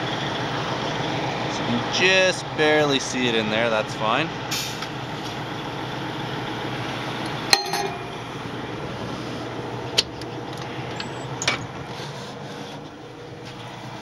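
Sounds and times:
metal cover plate clanking shut: 7.5 - 8.2.

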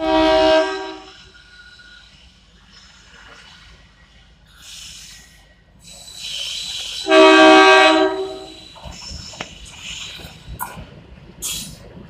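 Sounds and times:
locomotive horn blast: 0.0 - 1.2, 7.1 - 8.6
rush of oncoming train: 0.0 - 12.0.

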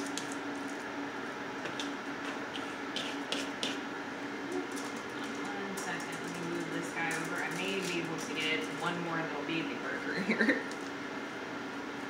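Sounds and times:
steady low hum: 0.0 - 12.0
hands patting meat patty: 1.6 - 3.8.

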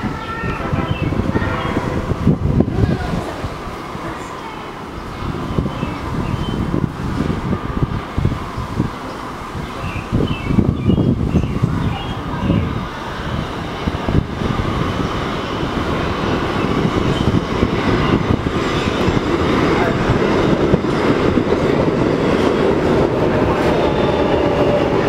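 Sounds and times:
subway train approaching: 0.0 - 25.0.

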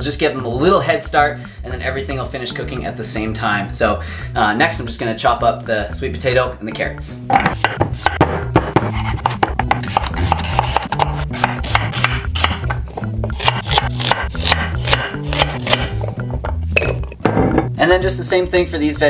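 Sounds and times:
background music with bass line: 0.0 - 19.0
knife chopping on wooden board: 7.3 - 16.0.

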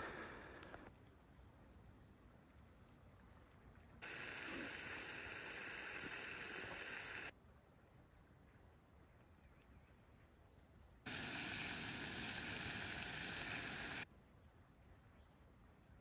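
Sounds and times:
faint outdoor background: 0.0 - 16.0
camp stove hissing: 4.0 - 7.3, 11.1 - 14.1.

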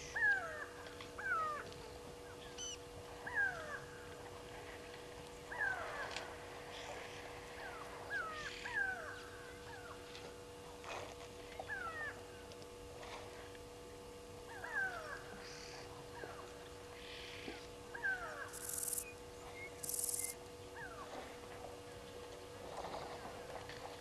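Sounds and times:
faint steady hum: 0.0 - 24.0
bird whistled calls: 18.5 - 20.4.

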